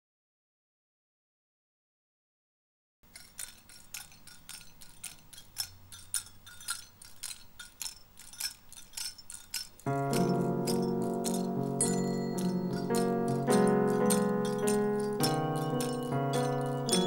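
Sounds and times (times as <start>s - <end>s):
cymbals tapping steady rhythm: 3.4s - 17.0s
keyboard chords: 9.9s - 17.0s.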